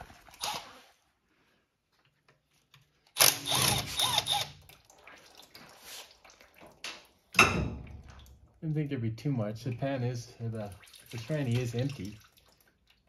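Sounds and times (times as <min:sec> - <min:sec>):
power ratchet spinning: 0:03.2 - 0:04.5.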